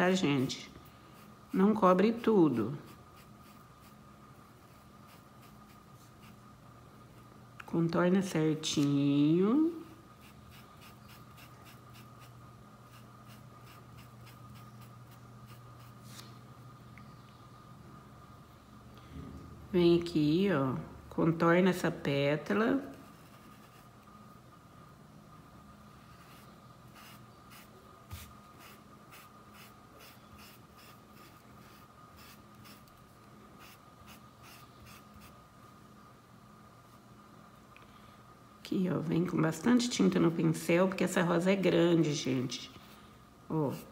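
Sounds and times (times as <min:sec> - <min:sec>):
paintbrush scratching on cloth: 0:00.2 - 0:04.0, 0:04.6 - 0:06.4, 0:10.2 - 0:16.2, 0:23.0 - 0:23.9, 0:26.1 - 0:32.9, 0:33.6 - 0:35.4.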